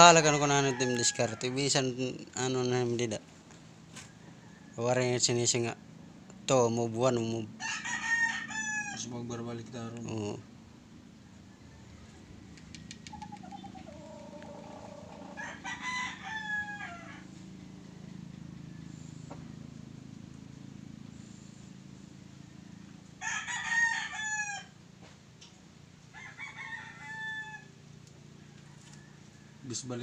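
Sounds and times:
rooster crowing: 0:00.0 - 0:01.9, 0:07.6 - 0:09.2, 0:11.3 - 0:12.6, 0:13.2 - 0:19.7, 0:22.5 - 0:24.8, 0:26.0 - 0:30.0
low steady hum: 0:00.0 - 0:26.2.

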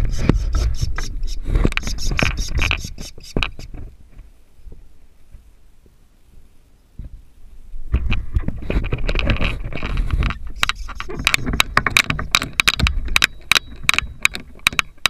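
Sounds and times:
camera scraping against wood: 0:00.0 - 0:03.9, 0:08.0 - 0:15.0
clicks and knocks on wood: 0:07.9 - 0:15.0.

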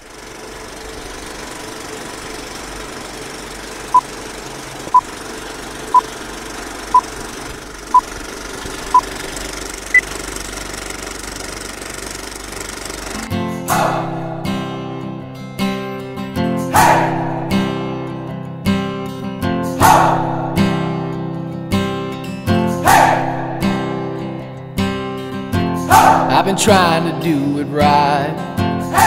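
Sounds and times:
film projector running: 0:00.0 - 0:13.3
acoustic guitar strumming: 0:13.1 - 0:29.0.

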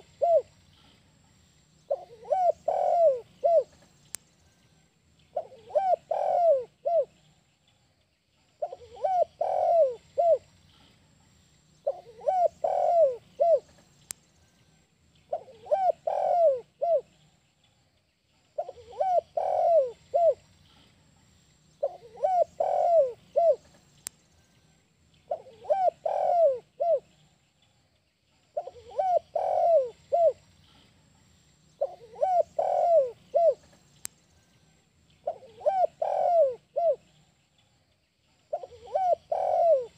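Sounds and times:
dove cooing: 0:00.0 - 0:00.5, 0:01.9 - 0:03.8, 0:05.3 - 0:07.2, 0:08.6 - 0:10.5, 0:11.8 - 0:13.8, 0:15.3 - 0:17.1, 0:18.6 - 0:20.4, 0:21.8 - 0:23.8, 0:25.3 - 0:27.1, 0:28.6 - 0:30.4, 0:31.8 - 0:33.8, 0:35.2 - 0:37.1, 0:38.5 - 0:39.9.

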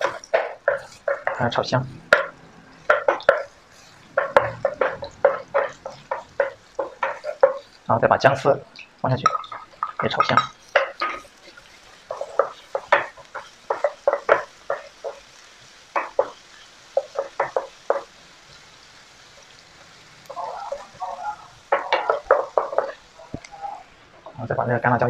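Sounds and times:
wooden spatula scraping a wok: 0:00.0 - 0:08.6, 0:09.2 - 0:18.2, 0:20.2 - 0:24.4
faint sizzle: 0:00.0 - 0:25.0.

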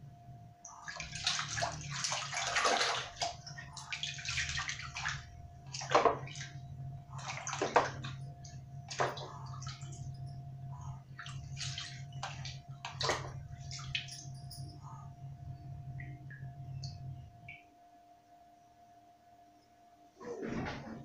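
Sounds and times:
faint steady hum: 0:00.0 - 0:21.0
hands splashing water in basin: 0:00.8 - 0:08.2, 0:08.9 - 0:10.1, 0:11.2 - 0:14.2.

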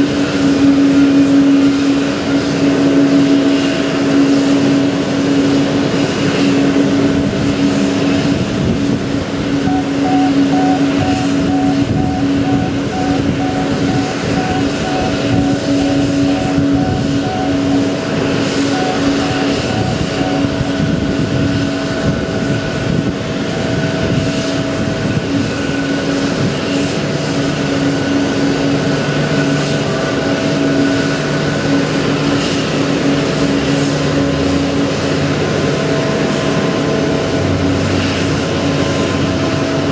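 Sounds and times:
aircraft whine and hum: 0:00.0 - 0:39.9
low hum: 0:09.2 - 0:22.8
quick pulsing beep: 0:09.7 - 0:20.8.

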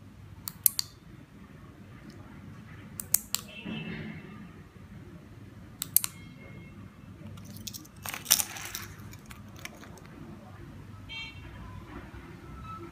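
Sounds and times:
handling noise: 0:07.3 - 0:10.4.

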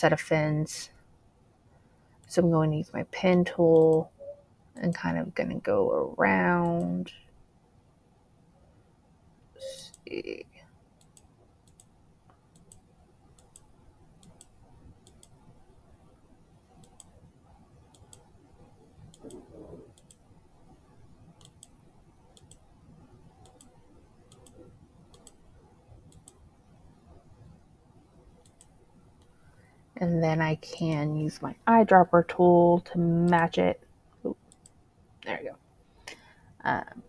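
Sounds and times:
computer mouse clicking: 0:03.7 - 0:05.0, 0:06.5 - 0:07.0, 0:11.0 - 0:15.6, 0:16.7 - 0:27.6, 0:28.3 - 0:29.7, 0:34.4 - 0:34.8.

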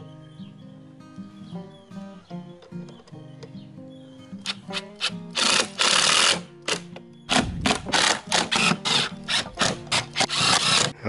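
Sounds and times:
faint background music: 0:00.0 - 0:11.0
cordless drill driving screws: 0:04.4 - 0:10.9.

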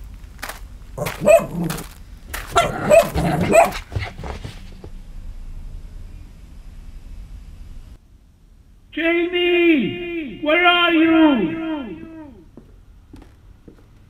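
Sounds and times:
low steady hum: 0:00.0 - 0:10.6
dog barking: 0:01.0 - 0:01.9, 0:02.5 - 0:04.2.

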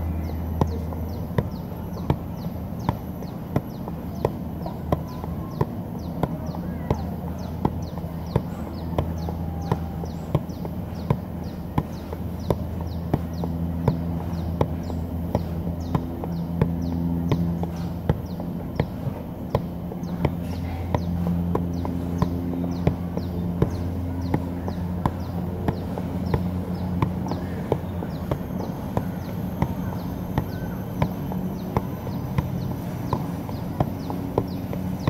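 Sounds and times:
steady low hum: 0:00.0 - 0:35.0
soccer ball thuds: 0:00.1 - 0:35.0.

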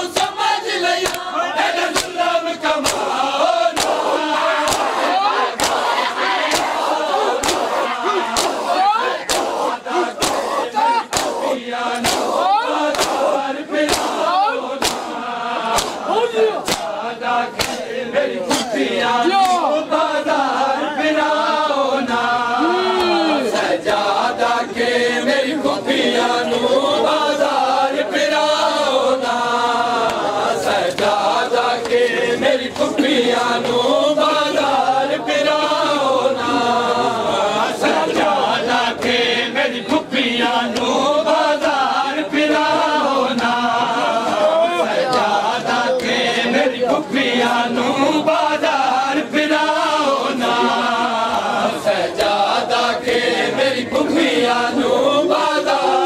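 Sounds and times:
men chanting in unison: 0:00.0 - 0:56.0
hands slapping chests: 0:01.0 - 0:01.3, 0:01.9 - 0:18.8, 0:19.4 - 0:19.7, 0:30.0 - 0:32.1.

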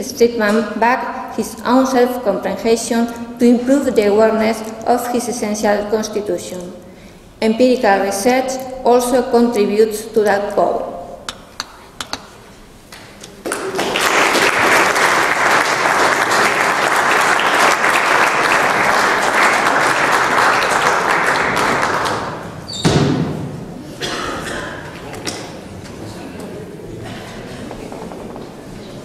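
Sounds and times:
audience applauding: 0:13.4 - 0:22.6.

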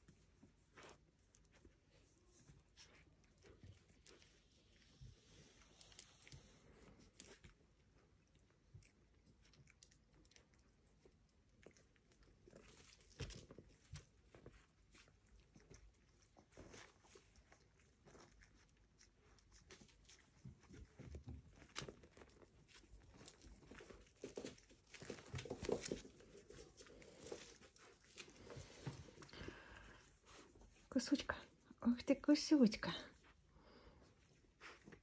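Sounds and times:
puppies scuffling on bedding: 0:00.0 - 0:08.0, 0:12.0 - 0:31.7.

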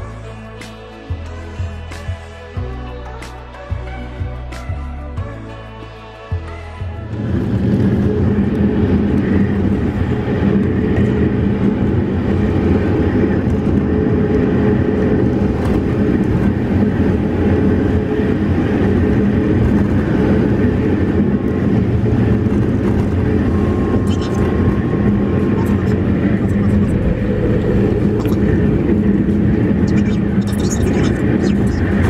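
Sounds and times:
road and tyre noise: 0:00.0 - 0:32.0
car engine hum: 0:06.5 - 0:32.0.

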